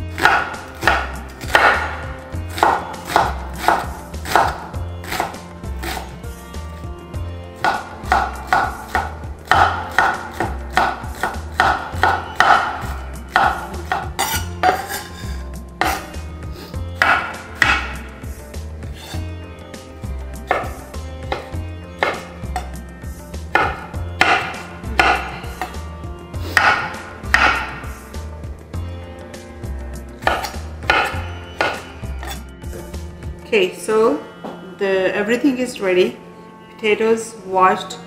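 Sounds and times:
soft background music: 0.0 - 38.0
knife chopping on wooden board: 0.2 - 6.1, 7.6 - 15.2, 15.8 - 16.2, 17.0 - 18.0, 20.5 - 22.8, 23.5 - 25.8, 26.5 - 27.9, 30.2 - 32.4.

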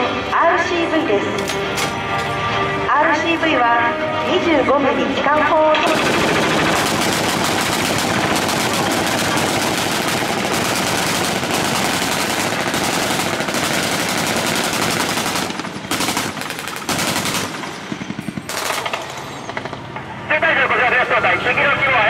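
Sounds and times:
rapid automatic gunfire: 5.8 - 20.0.

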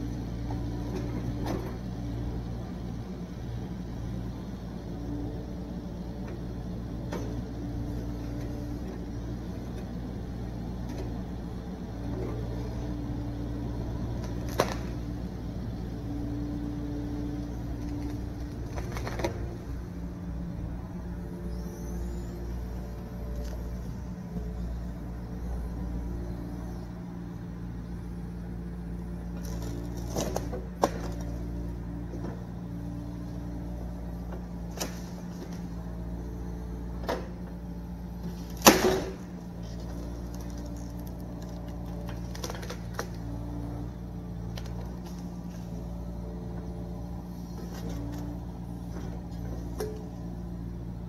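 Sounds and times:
excavator diesel engine running: 0.0 - 51.0
sharp knocks and cracks: 38.6 - 39.2.

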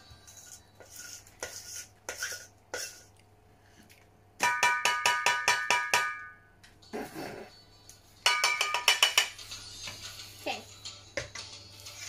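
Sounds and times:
spoon scraping metal bowl: 0.1 - 3.1
spoon clanking on metal rim: 8.3 - 9.4.

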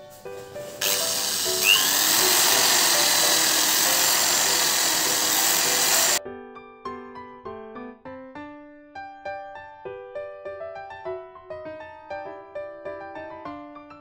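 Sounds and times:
keyboard background music: 0.0 - 14.0
electric drill boring acrylic: 0.8 - 6.2.

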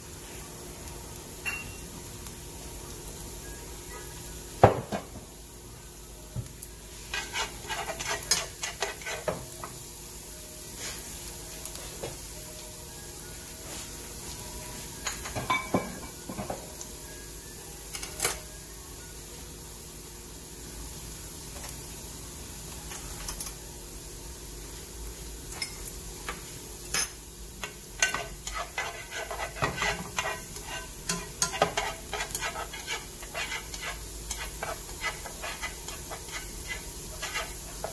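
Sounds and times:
garlic sizzling in oil: 0.0 - 37.9
utensil stirring in pan: 6.8 - 9.8, 25.6 - 37.9.

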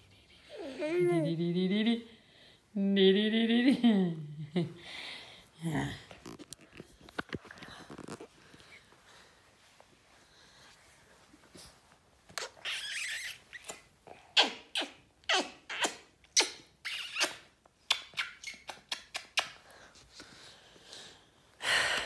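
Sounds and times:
squeaky kisses: 12.4 - 19.6.

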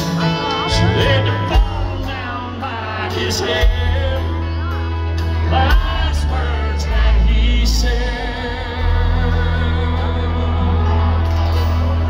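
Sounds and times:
bass line: 0.0 - 12.0
guitar: 0.0 - 12.0
live country band: 0.0 - 12.0
person singing: 0.0 - 12.0.

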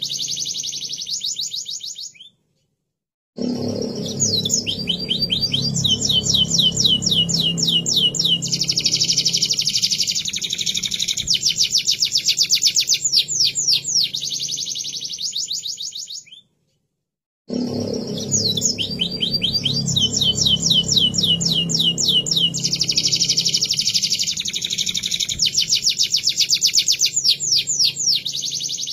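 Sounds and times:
canary singing trills: 0.0 - 2.4, 3.6 - 16.5, 17.7 - 28.9.

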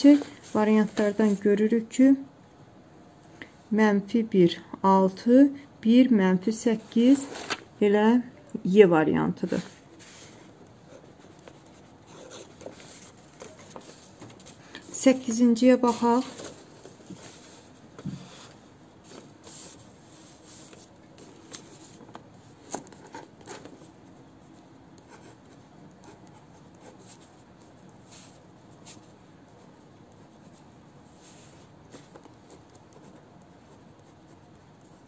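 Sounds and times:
pen scratching on paper: 10.9 - 13.6.

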